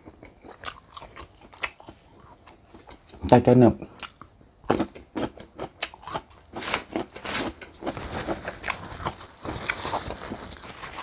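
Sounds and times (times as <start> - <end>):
wet chewing: 0.0 - 3.3
tissue rustling: 6.7 - 11.0.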